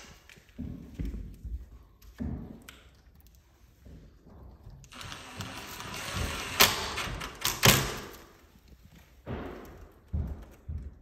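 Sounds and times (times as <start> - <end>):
cordless drill driving screw: 4.9 - 7.8.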